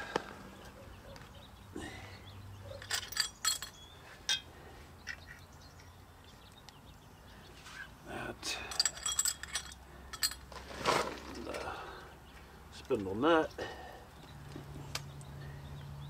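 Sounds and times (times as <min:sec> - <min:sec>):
light metallic clinks: 0:02.7 - 0:04.5, 0:08.5 - 0:10.5.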